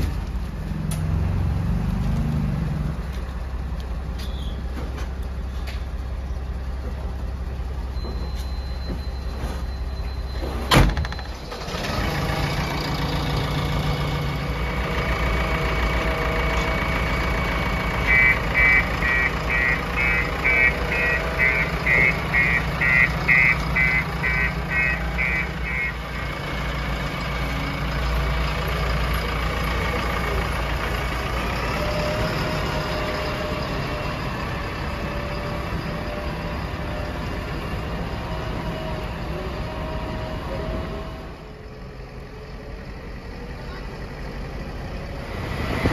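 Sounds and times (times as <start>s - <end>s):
diesel engine running: 0.0s - 45.9s
reversing alarm beeping: 7.9s - 11.4s, 17.9s - 26.3s.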